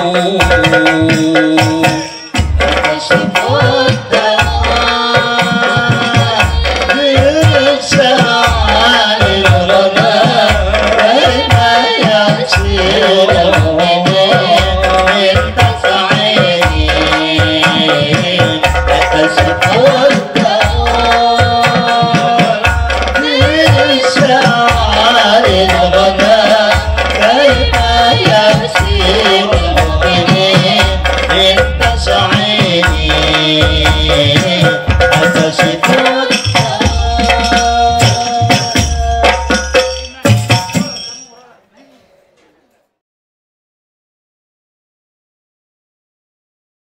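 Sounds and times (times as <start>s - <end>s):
men singing together: 0.0s - 39.9s
frame drums: 0.0s - 42.1s
jingling tambourines: 14.6s - 41.5s
tambourine jingling: 34.7s - 41.6s.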